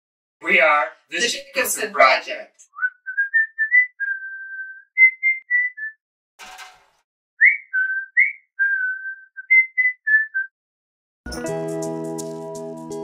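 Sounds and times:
person whistling a tune: 2.7 - 6.0, 7.4 - 10.5.

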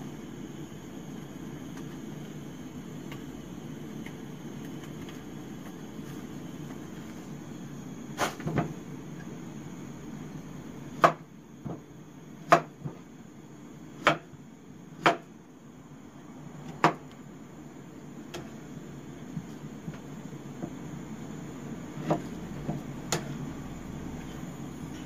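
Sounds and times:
steady low hum: 0.0 - 25.0
knife chopping on cutting board: 11.0 - 11.8, 12.4 - 13.0, 14.0 - 14.3, 15.0 - 15.3, 16.7 - 17.0.

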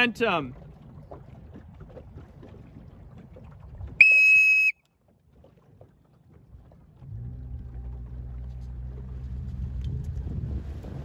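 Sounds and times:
whistle blast: 4.0 - 4.8
wind noise on microphone: 9.1 - 11.0.

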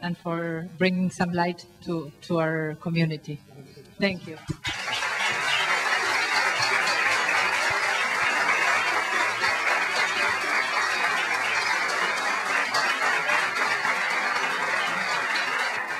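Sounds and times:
audience applauding: 4.6 - 15.9.

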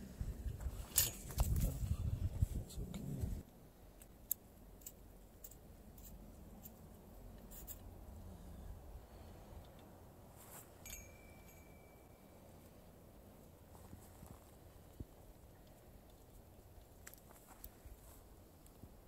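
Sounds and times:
wire clicks and scrapes: 7.4 - 7.9.

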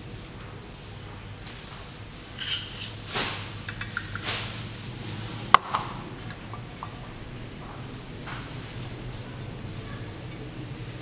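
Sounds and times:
sugar scraping and rustling: 2.3 - 3.4.

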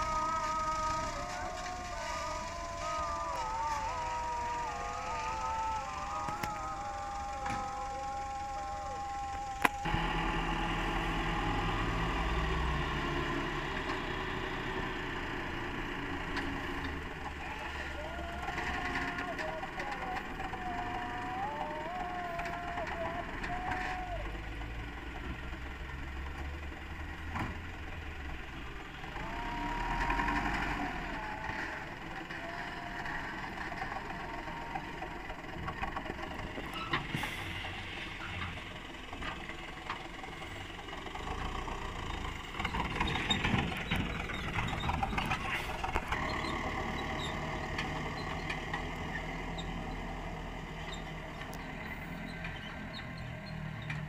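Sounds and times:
whine shifting in pitch: 0.0 - 13.5
diesel engines running: 0.0 - 54.0.

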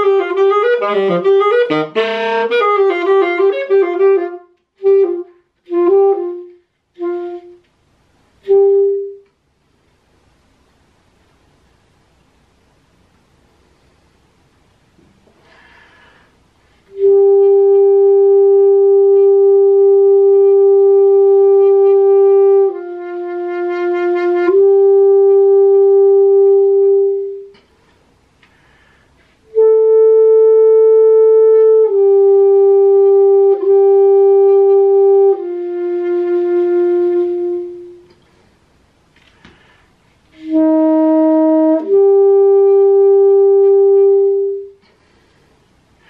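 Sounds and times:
solo alto saxophone: 0.0 - 9.4, 15.5 - 38.6, 39.2 - 46.0.

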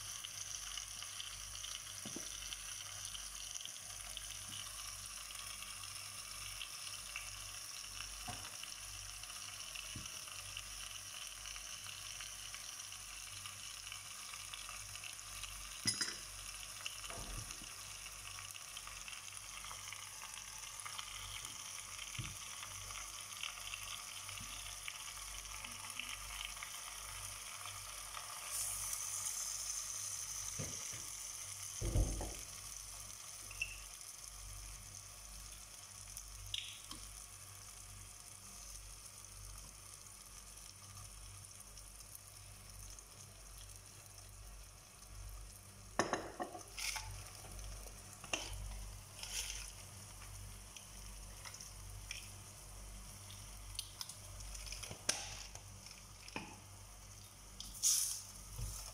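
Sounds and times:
food sizzling in a pot: 0.0 - 58.9
utensils knocking against pot: 15.8 - 16.3.

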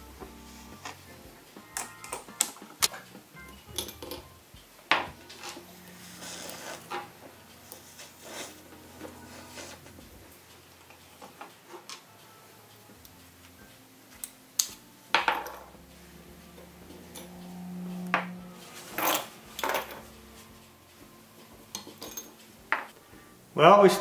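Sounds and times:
faint low hum: 12.0 - 23.6
small metal parts clinking on wood: 21.7 - 22.8.

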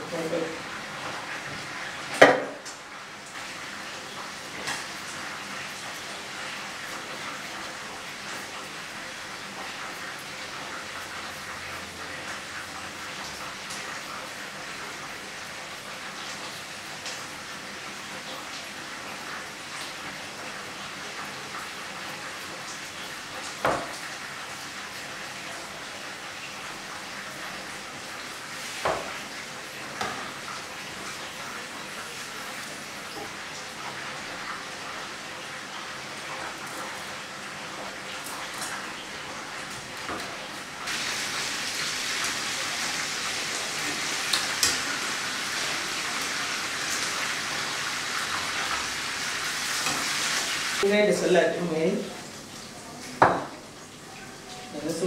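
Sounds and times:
meat sizzling in a frying pan: 0.0 - 55.0
sharp kitchen knocks: 2.1 - 2.6, 23.6 - 24.0, 53.2 - 53.5.

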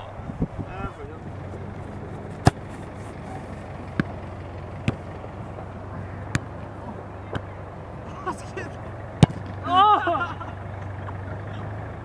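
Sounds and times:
low background rumble: 0.0 - 12.0
football kicked: 1.8 - 7.5, 9.2 - 9.6
ball thuds: 1.9 - 7.5, 9.1 - 9.6.

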